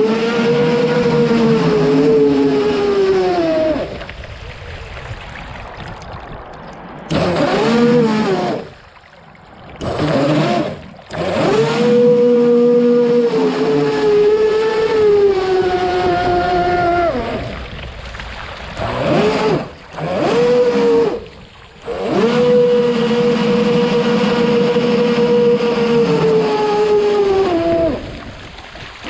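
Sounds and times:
model boat motor revving: 0.0s - 4.1s, 7.1s - 8.8s, 9.8s - 17.6s, 18.8s - 28.4s.

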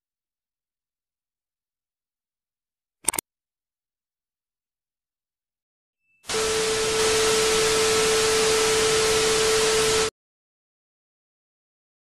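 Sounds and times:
loud static hiss: 6.3s - 10.1s
steady tone: 6.3s - 10.1s.

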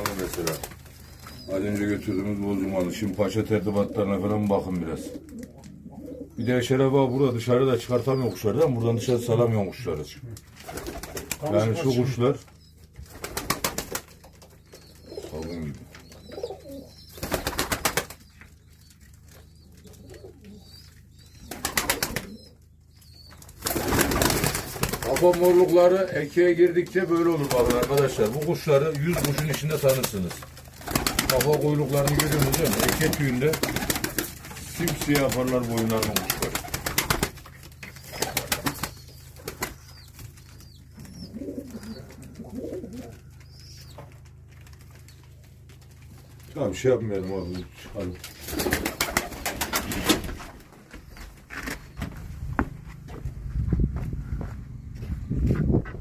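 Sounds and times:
pigeon wings flapping: 0.0s - 1.3s, 10.6s - 11.7s, 13.0s - 18.3s, 21.4s - 22.5s, 23.4s - 25.8s, 26.8s - 43.2s, 48.3s - 50.7s
faint pigeon cooing: 0.0s - 13.0s, 14.0s - 23.5s, 25.1s - 49.5s
low hum: 50.2s - 56.0s.

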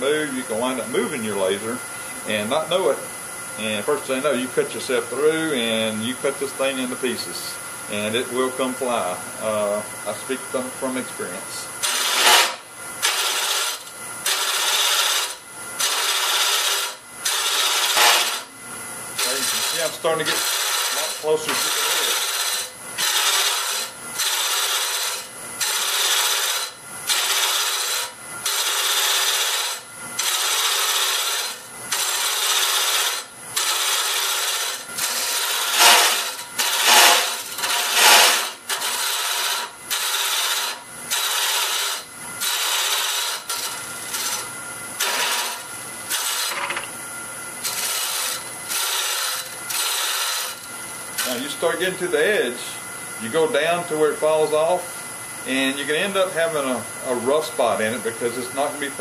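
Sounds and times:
boring bar scraping wood on lathe: 11.8s - 18.5s, 19.2s - 46.9s, 47.6s - 52.0s.

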